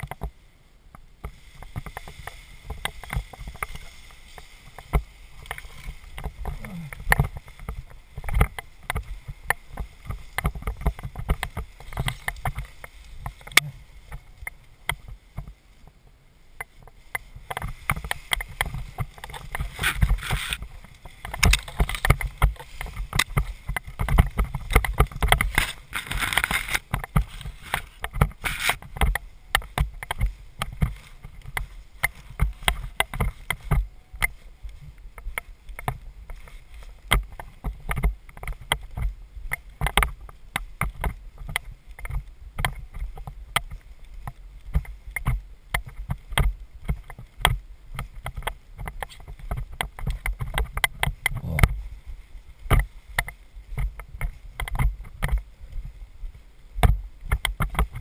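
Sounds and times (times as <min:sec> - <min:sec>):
rustling through dry grass: 0:00.0 - 0:58.0.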